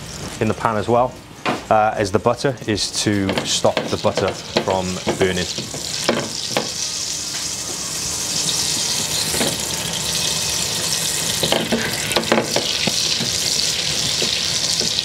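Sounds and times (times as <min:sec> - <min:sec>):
butter sizzling in a pan: 0:03.4 - 0:15.0.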